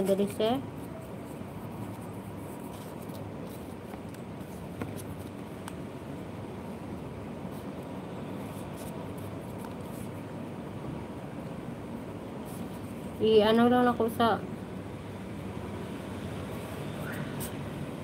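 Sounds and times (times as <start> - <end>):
paper sheets handled: 0.0 - 5.7
steady background hum: 0.0 - 18.0.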